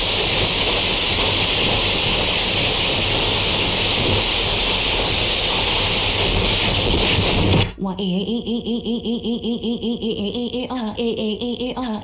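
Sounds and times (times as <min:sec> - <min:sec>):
static noise hiss: 0:00.0 - 0:07.8.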